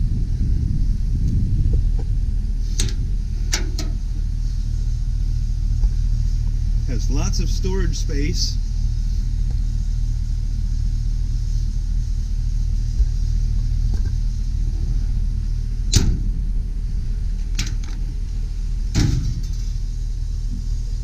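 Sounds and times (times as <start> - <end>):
truck engine idling: 0.0 - 21.0
metal compartment door clunk: 15.9 - 16.4, 17.5 - 18.0, 18.9 - 19.7.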